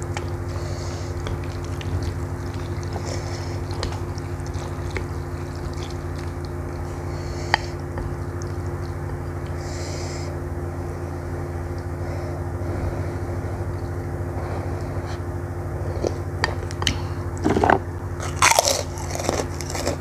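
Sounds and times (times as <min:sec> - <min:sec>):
low hum: 0:00.0 - 0:20.0
wet noodle sounds: 0:00.1 - 0:09.8.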